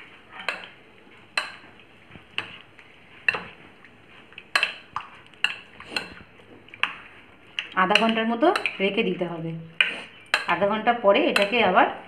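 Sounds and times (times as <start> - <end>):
soft mixing: 0.0 - 12.0
spoon clinking against bowl: 10.2 - 10.6.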